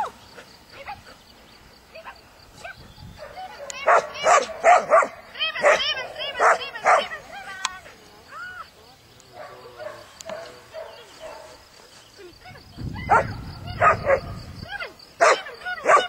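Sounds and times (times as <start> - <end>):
dog barking in high yips: 3.2 - 7.1, 13.0 - 14.4, 15.2 - 16.0.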